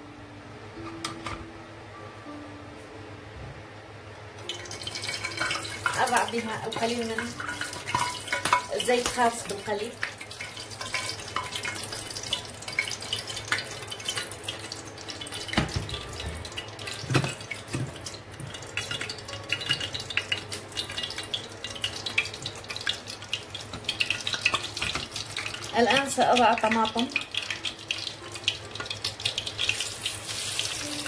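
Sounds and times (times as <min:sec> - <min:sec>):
oil sizzling in a frying pan: 0:04.4 - 0:31.0
cookware knocks: 0:15.6 - 0:16.5.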